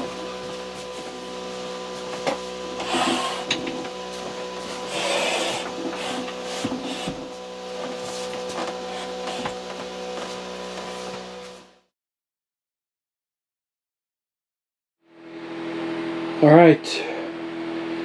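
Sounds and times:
steady hum: 0.0s - 11.2s
wood scraping on wood: 0.0s - 11.6s.

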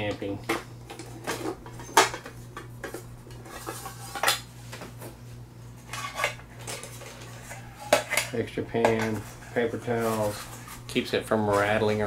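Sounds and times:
metal pans clinking together: 5.9s - 9.3s.

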